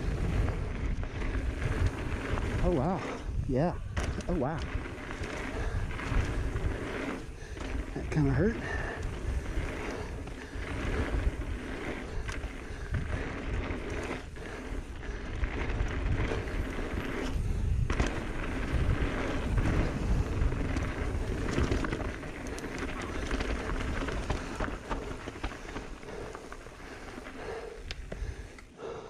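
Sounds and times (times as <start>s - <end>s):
bike tyres crunching on dirt: 0.0s - 29.0s
bike knocks and rattles: 3.8s - 14.6s, 15.5s - 26.5s.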